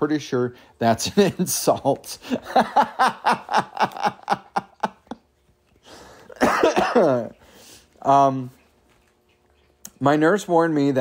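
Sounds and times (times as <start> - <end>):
man chuckling: 1.0 - 5.3, 5.9 - 7.4
breath in: 7.4 - 7.9.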